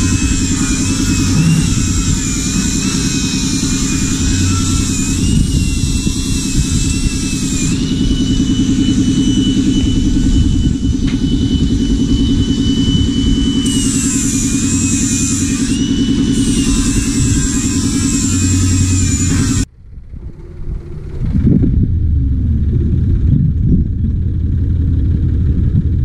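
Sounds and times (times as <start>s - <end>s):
angle grinder on steel: 0.0s - 19.7s
low drone: 0.0s - 26.0s.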